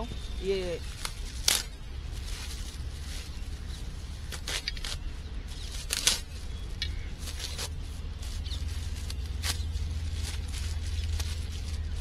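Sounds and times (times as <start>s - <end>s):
low steady rumble: 0.0s - 12.0s
plastic packaging crinkling: 7.2s - 12.0s.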